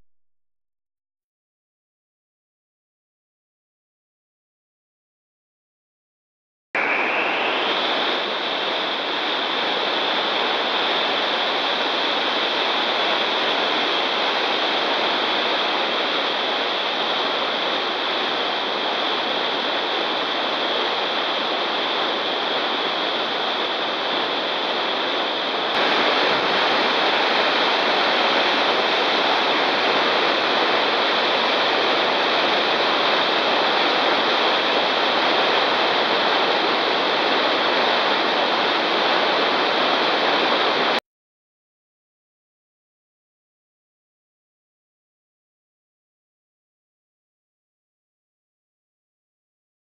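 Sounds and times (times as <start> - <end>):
whitewater rapids rushing: 6.8 - 41.0.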